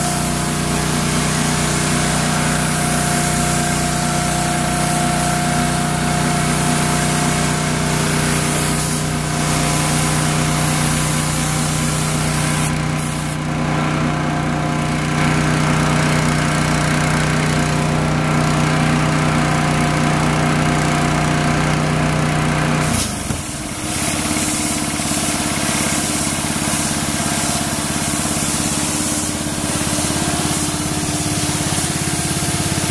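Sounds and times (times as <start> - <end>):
hiss: 0.0 - 13.4, 22.8 - 32.9.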